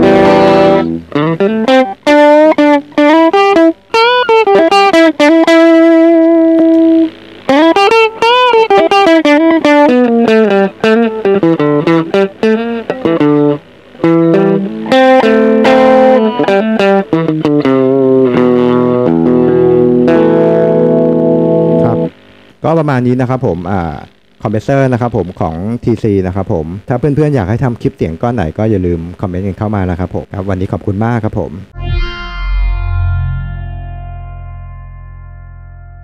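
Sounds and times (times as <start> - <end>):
electric guitar playing: 0.0 - 22.4, 31.7 - 36.0.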